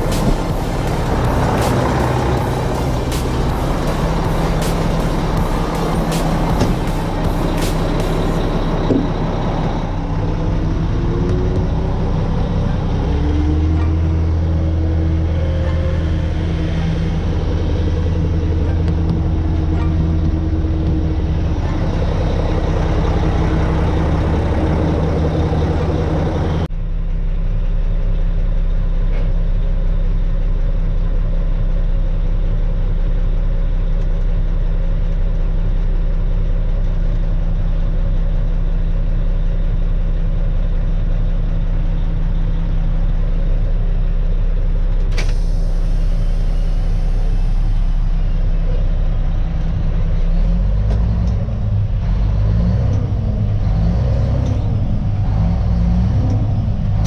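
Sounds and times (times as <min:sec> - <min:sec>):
diesel truck engine idling: 0:00.0 - 0:57.0
air brake valve hiss: 0:45.2 - 0:48.1.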